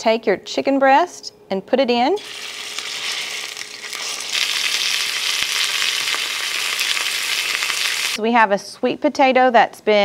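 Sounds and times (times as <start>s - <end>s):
chicken sizzling in oil: 2.2s - 8.2s.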